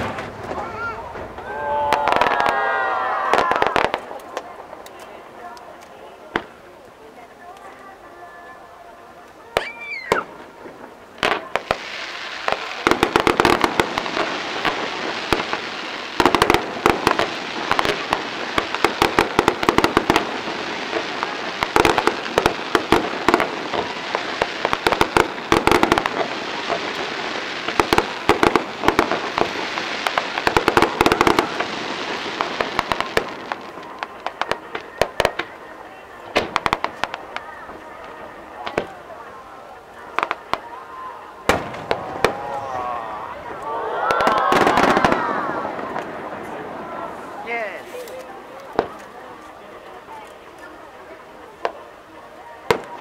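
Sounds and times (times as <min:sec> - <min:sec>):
fireworks popping and crackling: 0:00.0 - 0:53.0.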